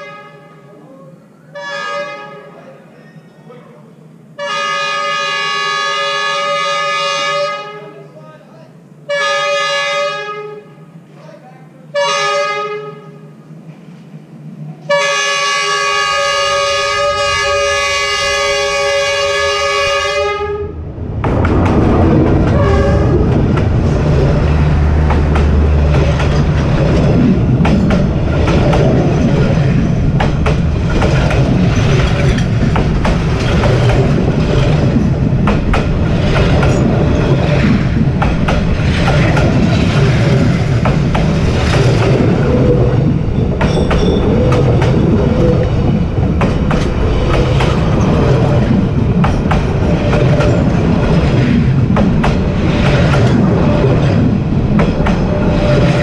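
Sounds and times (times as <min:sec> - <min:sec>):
train horn blast: 0:00.0 - 0:00.7, 0:01.5 - 0:02.6, 0:04.4 - 0:08.1, 0:09.1 - 0:10.9, 0:11.9 - 0:13.3, 0:14.8 - 0:20.8, 0:22.5 - 0:23.3
train rumbling over rails: 0:00.0 - 0:56.0
wheels clattering on rail joints: 0:21.2 - 0:56.0.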